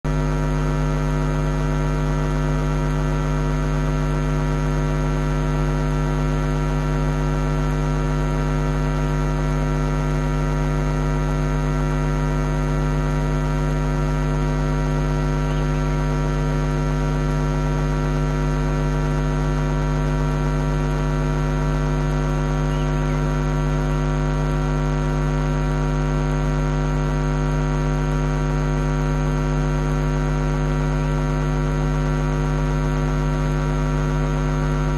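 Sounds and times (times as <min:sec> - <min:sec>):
electrical mains hum: 0:07.6 - 0:32.0, 0:32.8 - 0:34.9
faint high chirps: 0:15.4 - 0:15.8, 0:22.5 - 0:23.4.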